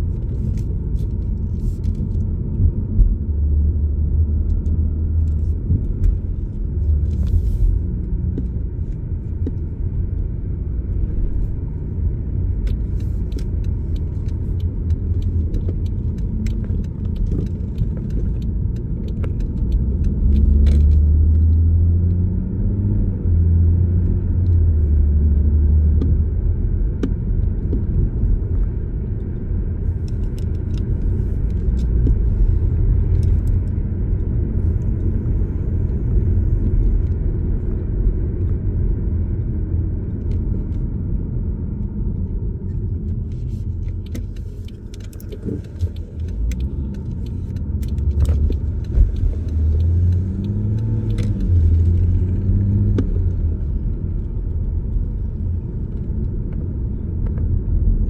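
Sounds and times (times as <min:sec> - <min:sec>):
car engine revving: 0:45.2 - 0:54.1.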